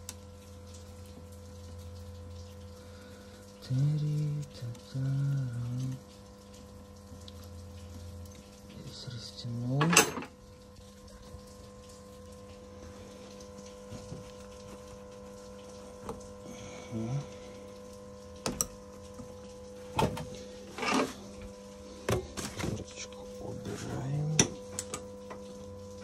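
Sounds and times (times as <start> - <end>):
steady hum: 0.0 - 26.0.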